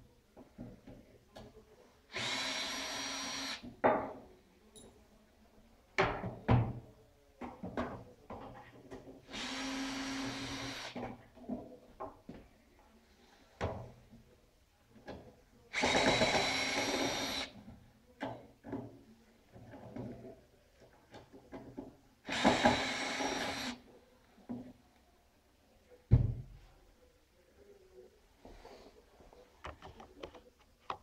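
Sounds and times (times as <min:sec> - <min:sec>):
cordless drill running: 0:02.1 - 0:03.6, 0:09.3 - 0:11.0, 0:15.8 - 0:17.5, 0:22.3 - 0:23.8.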